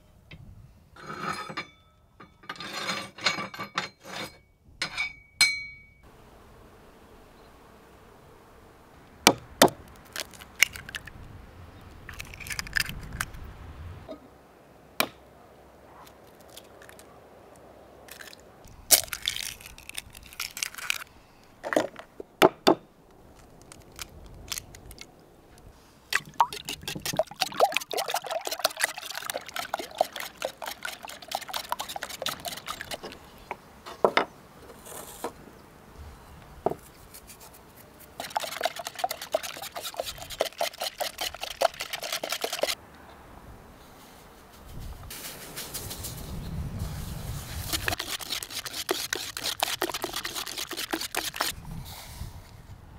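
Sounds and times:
eggs cracking against a bowl: 9.8s - 11.1s, 12.1s - 13.3s, 18.1s - 21.0s, 26.1s - 33.2s, 38.2s - 42.8s, 47.7s - 51.5s
whisk beating in a clay bowl: 26.2s - 33.2s, 38.2s - 42.8s, 47.6s - 51.6s.

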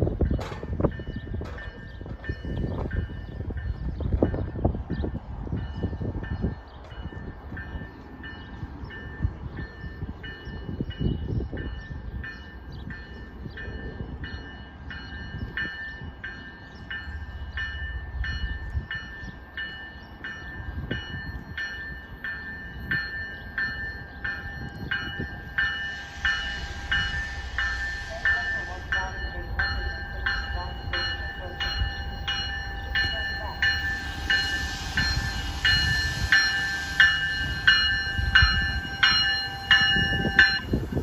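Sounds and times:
railroad warning bell dinging: 0.0s - 41.0s.

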